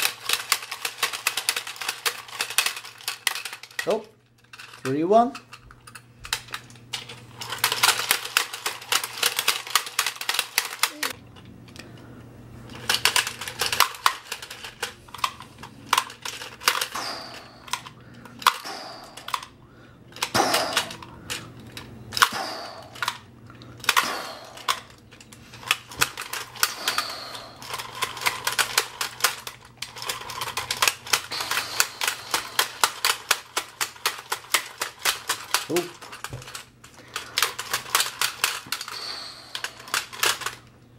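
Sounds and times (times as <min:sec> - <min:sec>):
plastic toy clicking and clacking: 0:00.0 - 0:11.8, 0:12.7 - 0:19.5, 0:20.1 - 0:40.6.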